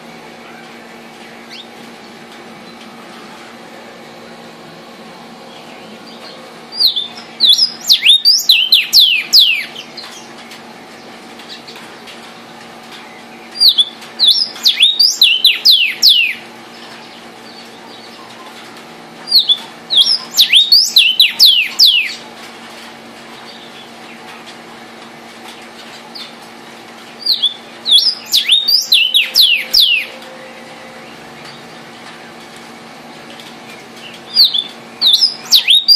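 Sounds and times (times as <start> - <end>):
bird singing falling whistles: 27.3 - 30.2, 34.4 - 35.9.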